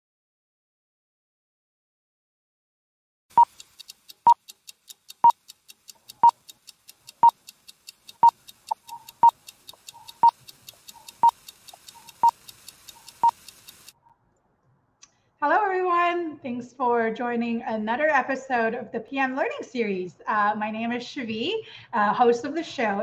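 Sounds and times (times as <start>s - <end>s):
fast high ticking: 3.3s - 14.1s.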